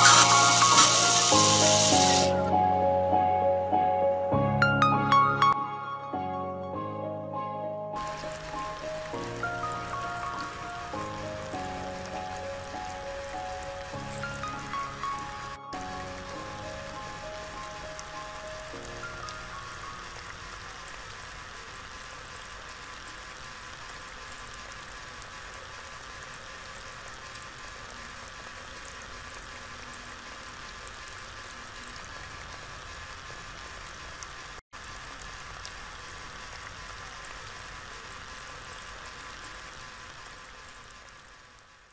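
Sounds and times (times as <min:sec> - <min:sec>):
water splashing onto wet soil: 0:00.0 - 0:02.4
pump motor hum: 0:00.0 - 0:02.5, 0:08.0 - 0:41.9.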